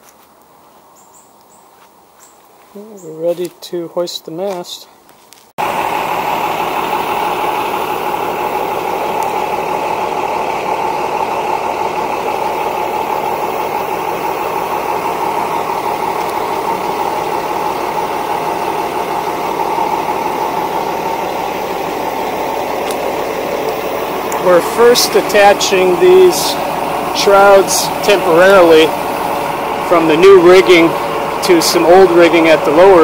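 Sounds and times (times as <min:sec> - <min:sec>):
forklift engine running: 0:05.6 - 0:33.0.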